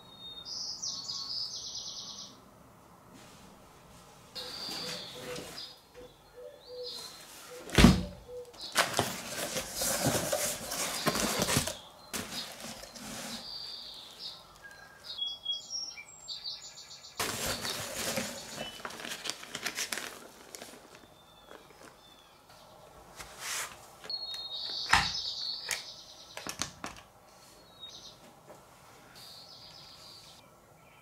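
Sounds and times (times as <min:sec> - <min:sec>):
faint high chirps: 0:04.4 - 0:07.2
bubble wrap rustling: 0:08.6 - 0:14.1, 0:17.2 - 0:22.1.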